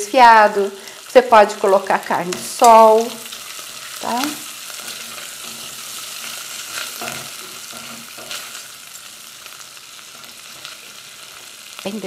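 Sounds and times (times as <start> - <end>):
bacon and sausage sizzling: 0.0 - 12.0
spatula scraping a pot: 4.6 - 8.8.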